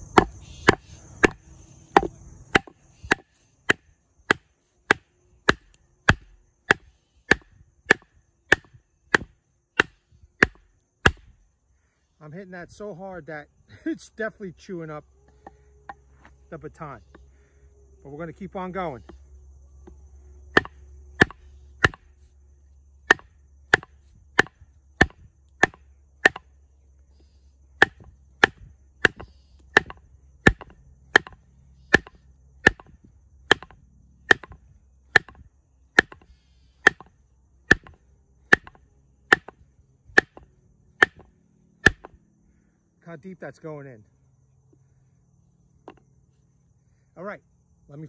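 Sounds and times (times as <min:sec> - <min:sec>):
wooden baton striking knife spine: 0:20.6 - 0:22.1.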